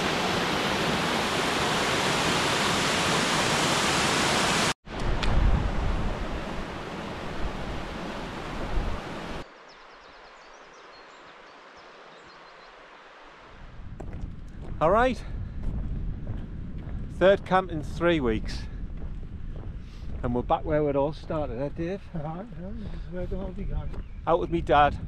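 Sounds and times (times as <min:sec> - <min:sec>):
waterfall rushing: 0:00.0 - 0:04.8
low rumble: 0:13.6 - 0:24.0.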